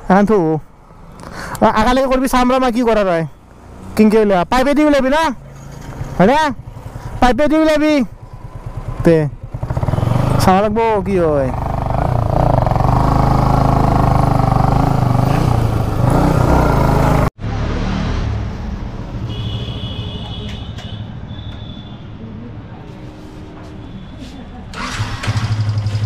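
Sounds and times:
motorcycle engine running: 8.1 - 17.3.

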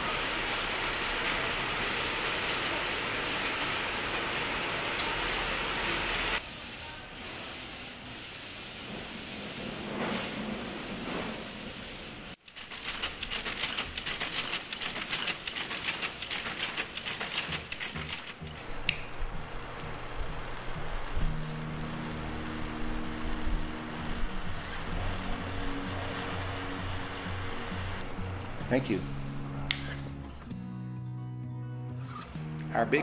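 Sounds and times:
mechanical clatter of machines: 12.4 - 18.9.

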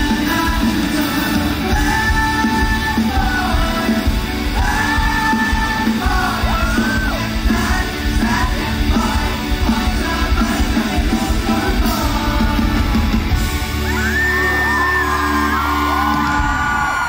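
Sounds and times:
man singing into a microphone: 0.0 - 13.0
live rock band playing: 0.0 - 17.0.

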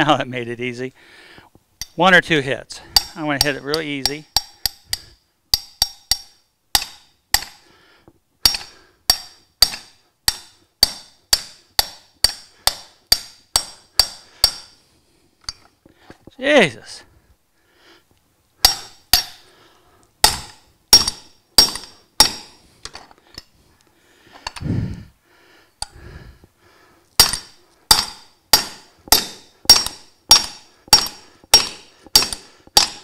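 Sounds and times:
hammer striking metal: 2.9 - 7.6, 8.4 - 14.8, 18.6 - 19.5, 20.2 - 22.6, 27.2 - 33.0.

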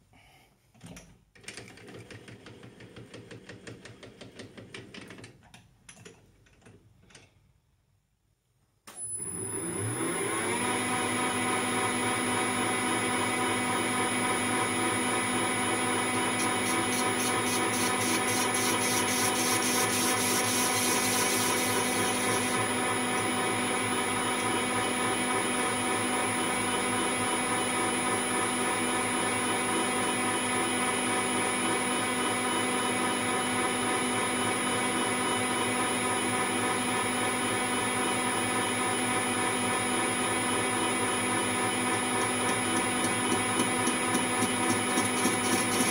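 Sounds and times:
metal lathe whine: 15.2 - 25.8, 42.0 - 45.9.

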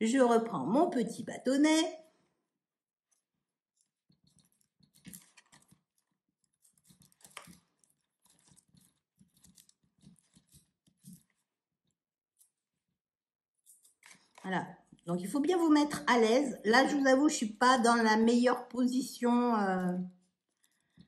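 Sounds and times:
cuticle stick scratching nail: 3.1 - 11.5.

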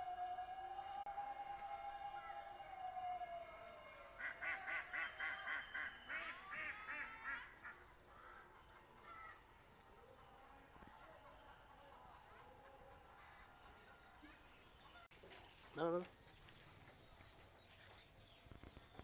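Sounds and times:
ducks quacking: 4.2 - 9.4.

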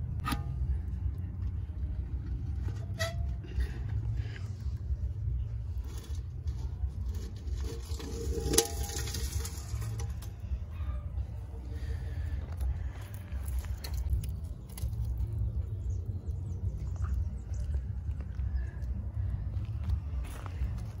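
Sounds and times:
low rumble: 0.0 - 21.0
metal bucket knocking: 7.6 - 10.2.

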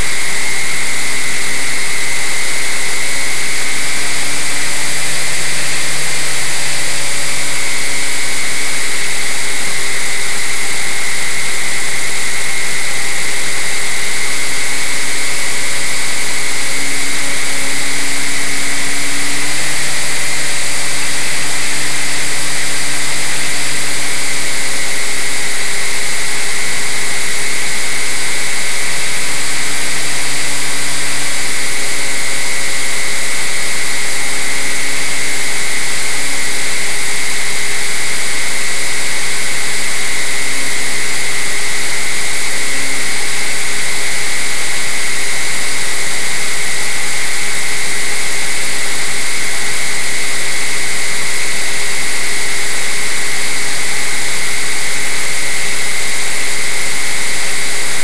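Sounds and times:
model airplane motor whine: 0.0 - 38.8.

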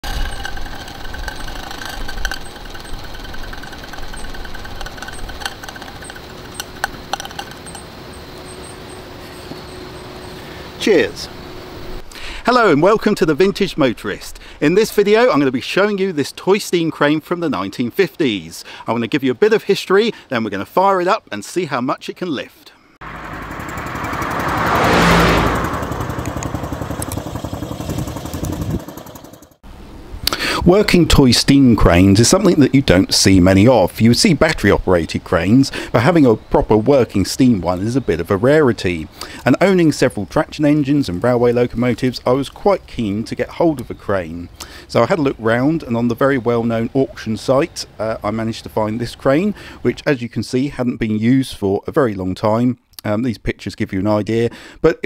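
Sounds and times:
toy steam engine rattling: 0.0 - 7.9
sharp clicks: 0.0 - 8.8, 26.2 - 27.3
car driving past: 23.0 - 29.3.

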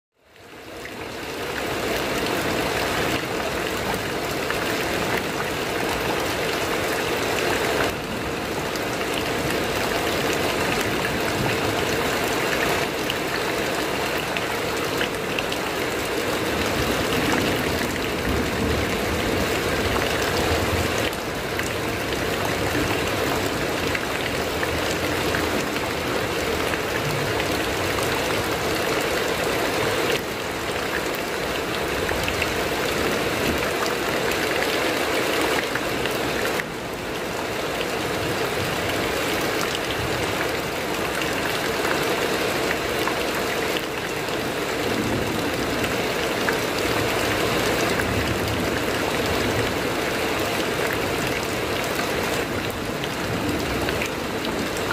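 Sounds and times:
heavy rain on a metal roof: 0.1 - 54.9.

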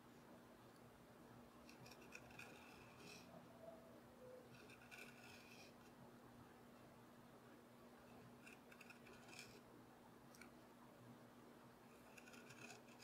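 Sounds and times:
low steady hum: 0.0 - 13.0
knife scraping wood: 1.7 - 3.3, 4.5 - 5.8, 8.4 - 9.6, 12.0 - 13.0.

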